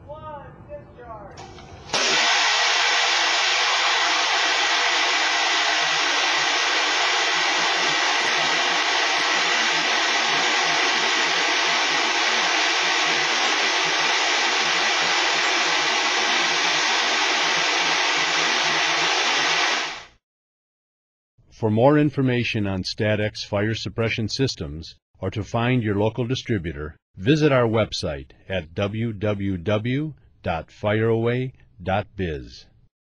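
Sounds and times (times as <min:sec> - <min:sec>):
aerosol jet rushing hiss: 0:02.0 - 0:20.1.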